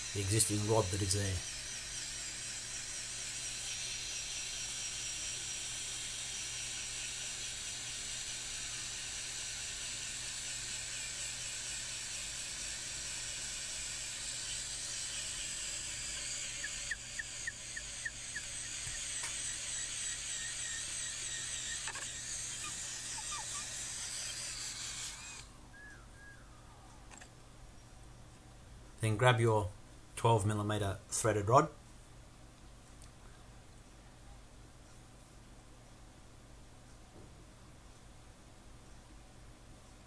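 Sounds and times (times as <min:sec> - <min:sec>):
electric drill boring through wood: 0:00.0 - 0:25.5.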